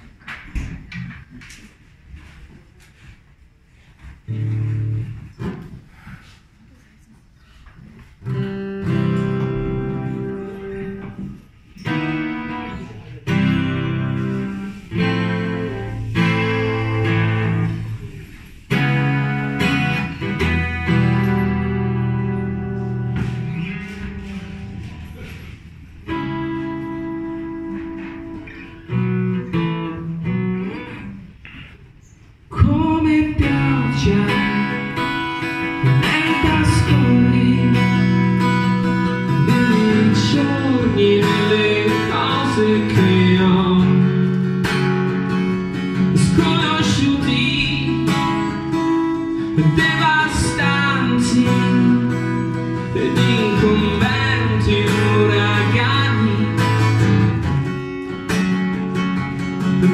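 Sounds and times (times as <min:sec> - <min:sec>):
acoustic guitar: 0:00.0 - 0:59.9
man singing: 0:32.5 - 0:44.4, 0:46.0 - 0:57.3.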